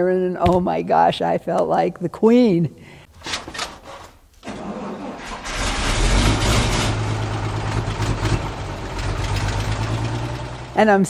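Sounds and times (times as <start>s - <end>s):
truck engine cranking and idling: 4.4s - 11.0s.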